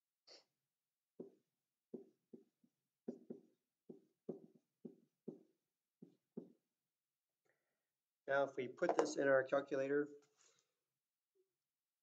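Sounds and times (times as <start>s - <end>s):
stylus tapping and scraping screen: 1.1s - 6.8s.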